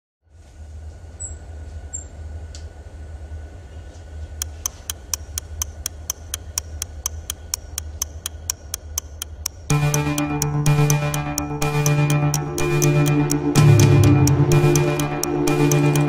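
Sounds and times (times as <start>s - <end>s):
steady low hum: 0.6s - 16.0s
fast even ticking: 4.4s - 16.0s.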